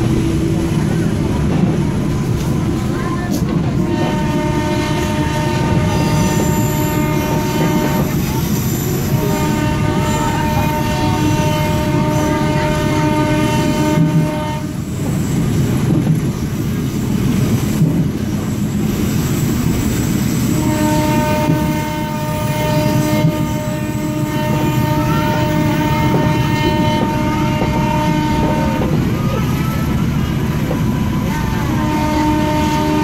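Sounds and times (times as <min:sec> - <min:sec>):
train rumble and wheel clatter: 0:00.0 - 0:33.0
two-note train horn: 0:03.3 - 0:14.9, 0:20.5 - 0:29.0, 0:31.1 - 0:33.0.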